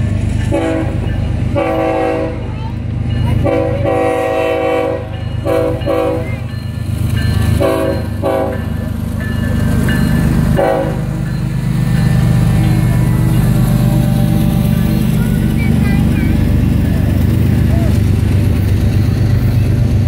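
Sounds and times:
diesel engines rumbling: 0.0 - 20.0
locomotive air horn blasts: 0.5 - 1.0, 1.6 - 2.4, 3.4 - 6.2, 7.6 - 8.6, 10.6 - 11.1.

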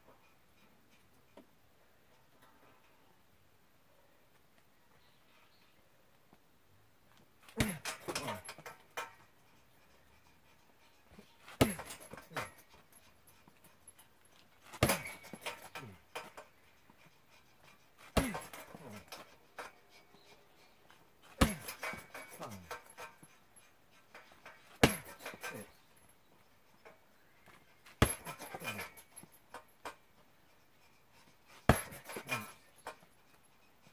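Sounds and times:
bag hanger rattling and squeaking: 7.4 - 33.9
punching bag thuds: 11.5 - 12.2, 14.7 - 15.7, 18.1 - 18.8, 21.4 - 22.3, 24.8 - 25.4, 28.0 - 28.8, 31.7 - 32.2.

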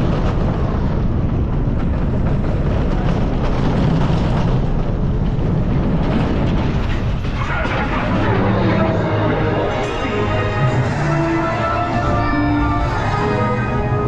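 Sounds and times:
wind rushing over camera: 0.0 - 7.9
wheels rumbling on steel track: 0.0 - 14.0.

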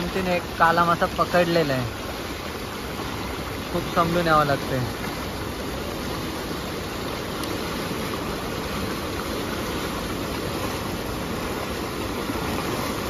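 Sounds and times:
creek water rushing: 0.0 - 13.0.

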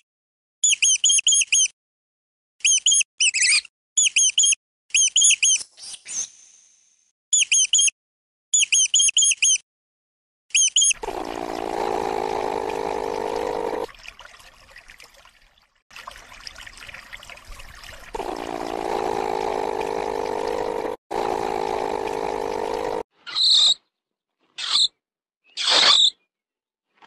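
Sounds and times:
running water rushing: 11.0 - 23.0.

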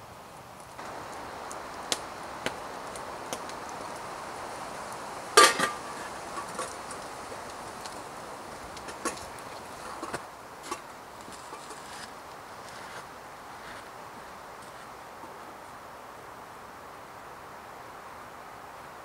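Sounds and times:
metal bowl clanking: 5.4 - 6.8.

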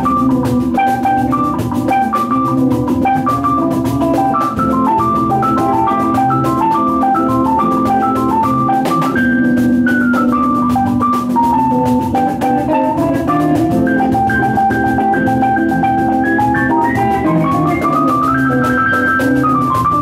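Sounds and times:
drum kit beat: 0.0 - 20.0
electric guitar: 0.0 - 20.0
keyboard: 0.0 - 20.0.

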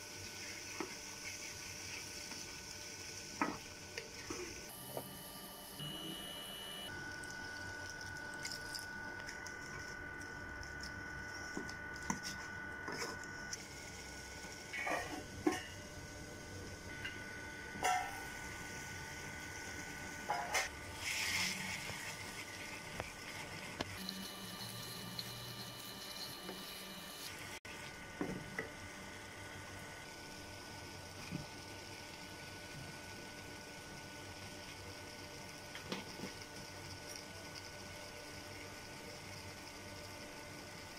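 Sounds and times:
steady hum: 4.2 - 30.9
faint high steady tones: 4.7 - 7.0, 24.0 - 27.6.

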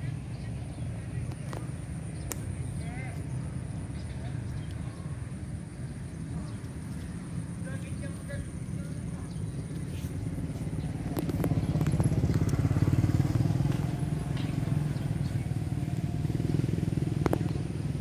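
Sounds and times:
vehicle engine humming: 0.0 - 18.0.

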